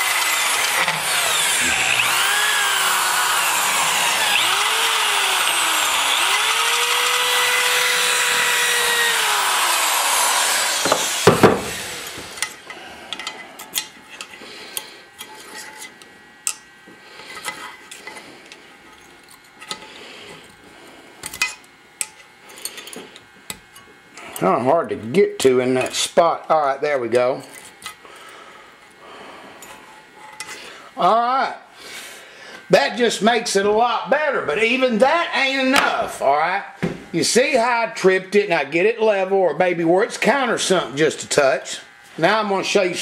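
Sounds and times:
die grinder cutting metal: 0:00.0 - 0:16.6.

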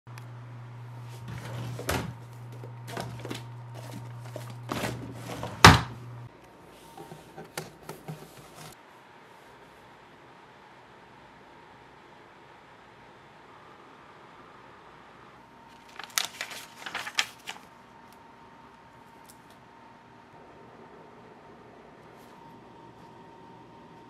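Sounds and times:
papers shuffling: 0:01.1 - 0:05.9, 0:06.8 - 0:08.8, 0:15.7 - 0:17.8
drawer knocking and sliding: 0:01.3 - 0:02.2, 0:04.7 - 0:06.0.

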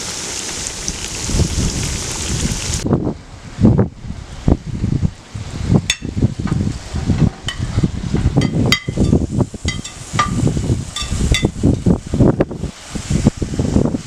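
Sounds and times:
wind rumble on microphone: 0:00.6 - 0:14.0
utensil clinking on metal bowl: 0:08.4 - 0:10.4.

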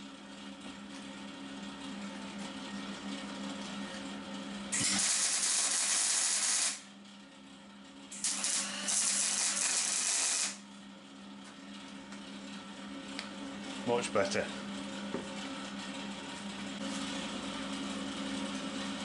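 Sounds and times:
welding arc sizzling: 0:04.7 - 0:06.8, 0:08.1 - 0:10.6.

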